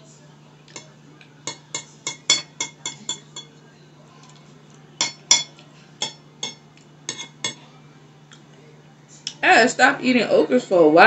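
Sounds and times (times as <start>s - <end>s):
metal spoon clinking against bowl: 0.7s - 3.5s, 5.0s - 7.6s.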